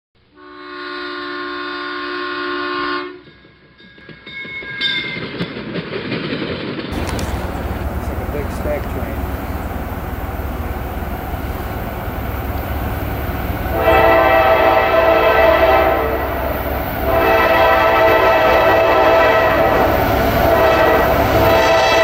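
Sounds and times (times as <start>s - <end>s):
locomotive air horn blasts: 0.3s - 3.2s, 13.6s - 22.0s.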